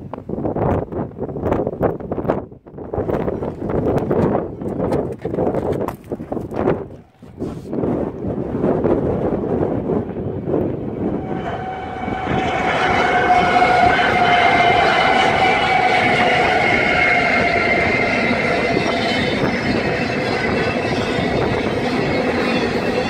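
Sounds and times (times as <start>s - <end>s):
freight train passing: 6.5s - 23.0s
steady high whine: 10.2s - 23.0s.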